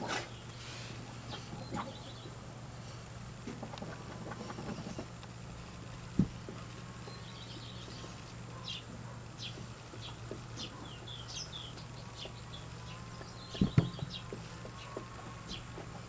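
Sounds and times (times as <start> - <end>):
low steady hum: 0.0 - 16.0
small birds chirping: 0.3 - 2.4, 6.0 - 16.0
dull thump: 6.2 - 6.4, 13.6 - 14.2.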